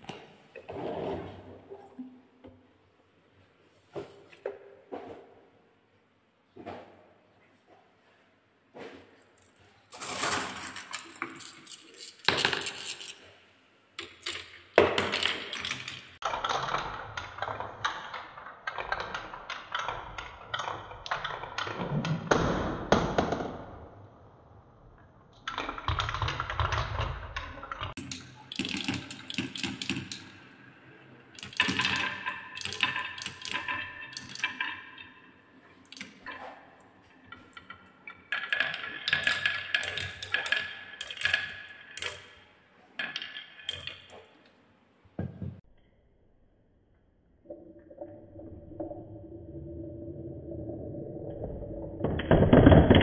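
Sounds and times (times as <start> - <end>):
marbles clattering on wooden tracks: 9.4 - 13.3, 14.0 - 16.2, 25.7 - 42.4, 43.0 - 44.4.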